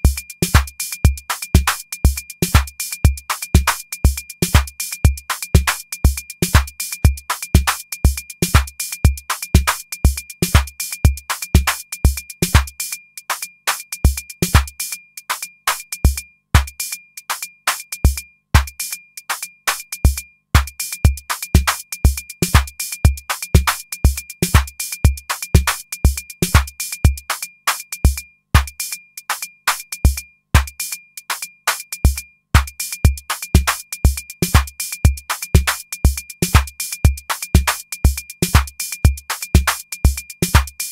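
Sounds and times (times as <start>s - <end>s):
hi-hat ticks: 0.0s - 40.9s
kick drum: 16.1s - 16.8s, 18.1s - 18.8s, 20.1s - 27.3s, 30.1s - 30.8s, 32.1s - 40.9s.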